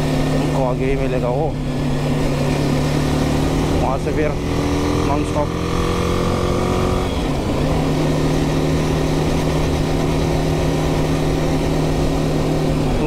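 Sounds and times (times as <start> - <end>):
motorcycle engine cruising: 0.0 - 13.0.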